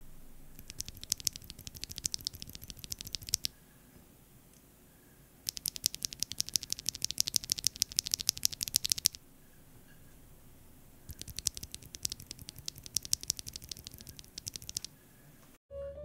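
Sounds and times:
keyboard switch clicking: 0.6 - 3.5, 5.5 - 9.2, 11.1 - 14.9.

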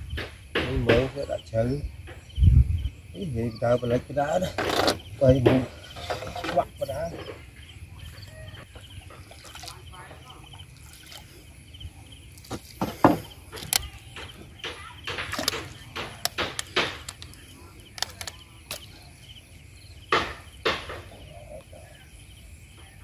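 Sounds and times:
knocks on wooden canoe: 0.1 - 1.2, 12.5 - 13.3, 20.1 - 21.2
water splashes: 5.1 - 19.2.

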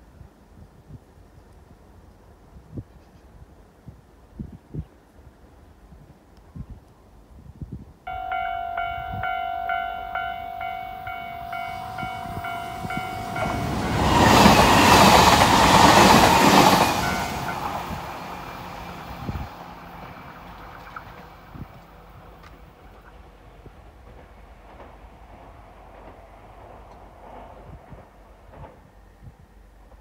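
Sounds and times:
level crossing bell ringing: 8.1 - 14.0
train passing with wheel clatter: 8.1 - 30.0.

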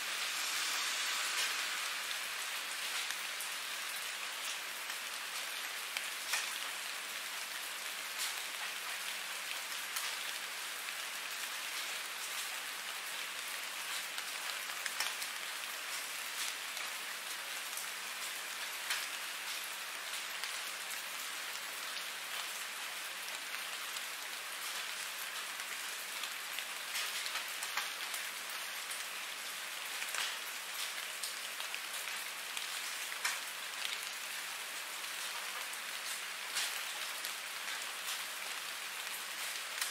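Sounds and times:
steady rain hiss: 0.0 - 39.9
rain drop ticks: 0.8 - 6.8, 13.9 - 16.9, 17.7 - 20.6, 26.2 - 28.2, 29.9 - 34.4.

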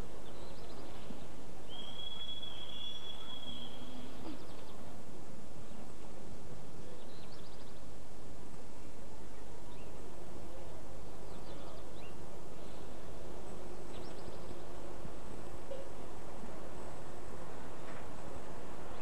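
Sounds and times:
faint steady hum: 0.0 - 19.0
faint bird chirps: 0.2 - 4.9, 11.2 - 13.0.

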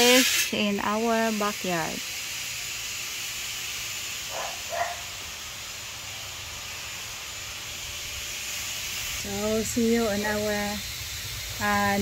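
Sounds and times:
dog barking: 4.3 - 5.1.

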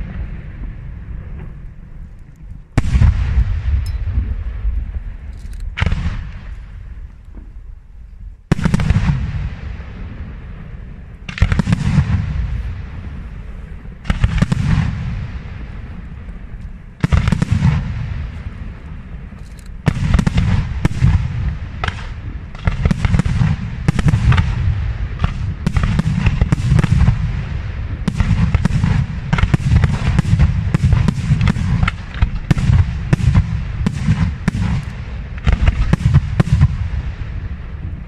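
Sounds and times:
deep rumble: 0.0 - 22.9.

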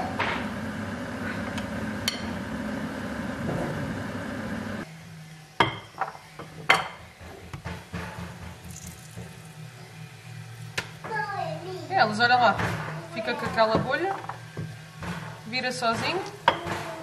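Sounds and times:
oil sizzling in a pan: 8.5 - 12.4.

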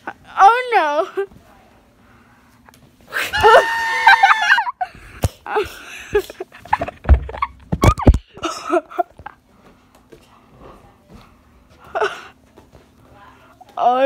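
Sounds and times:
high-pitched scream: 3.3 - 4.6.

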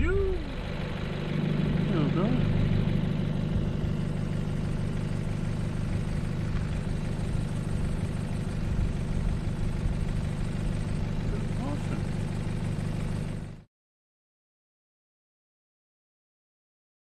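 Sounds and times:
vehicle engine idling: 0.0 - 13.6.

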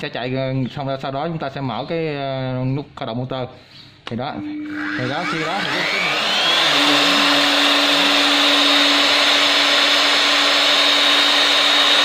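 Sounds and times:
electric drill motor whining: 4.6 - 12.0.

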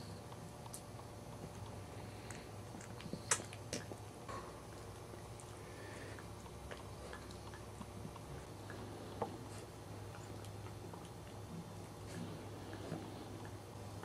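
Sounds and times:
low steady hum: 0.0 - 14.0.

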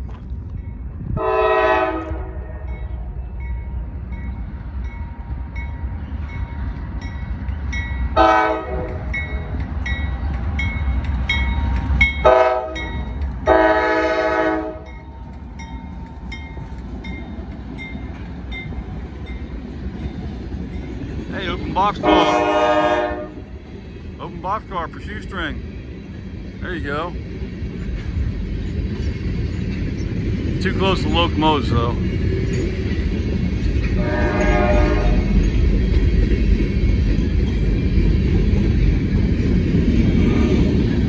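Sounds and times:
diesel locomotive engine rumble: 0.0 - 41.0
crossing warning bell ringing: 0.5 - 23.4, 29.5 - 38.1
train air horn blasts: 1.2 - 2.8, 8.2 - 9.1, 12.2 - 14.9, 22.0 - 23.5, 34.0 - 35.4.

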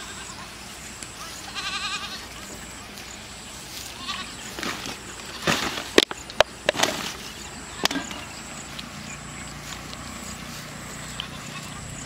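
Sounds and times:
goat bleating: 0.0 - 2.7, 3.7 - 4.5, 11.0 - 12.0.

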